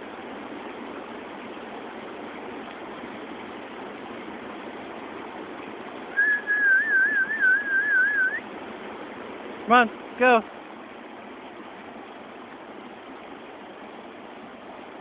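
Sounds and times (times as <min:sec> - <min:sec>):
river water rushing: 0:00.0 - 0:15.0
person whistling: 0:06.2 - 0:08.4.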